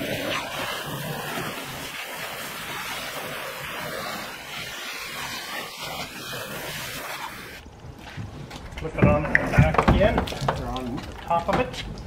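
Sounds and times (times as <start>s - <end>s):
hose nozzle spray hissing: 0.0s - 7.6s
water spattering on plastic hull: 5.2s - 12.0s.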